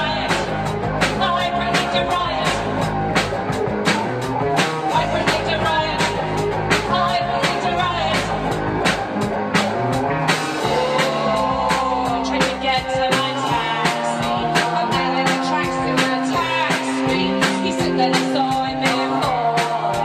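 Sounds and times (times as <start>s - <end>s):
bass guitar: 0.0s - 20.0s
drum kit beat: 0.0s - 20.0s
electric guitar: 0.0s - 20.0s
voices singing together: 1.2s - 2.8s, 10.6s - 20.0s.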